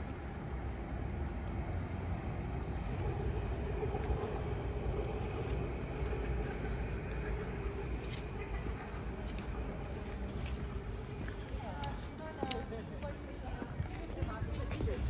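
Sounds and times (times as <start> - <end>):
vehicle passing with hum: 0.0 - 11.6
low traffic rumble: 0.0 - 15.0.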